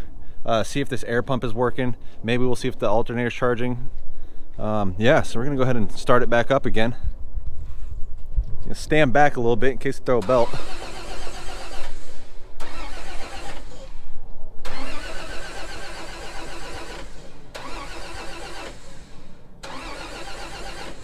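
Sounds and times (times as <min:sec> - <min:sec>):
starter motor cranking engine: 0:10.2 - 0:14.0, 0:14.6 - 0:21.0.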